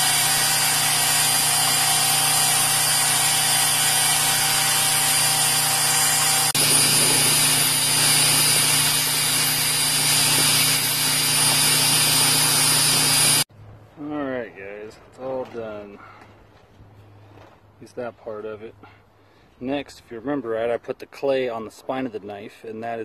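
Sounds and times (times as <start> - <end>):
blade grinding on belt: 0.0 - 13.5
motor hum: 0.0 - 13.5.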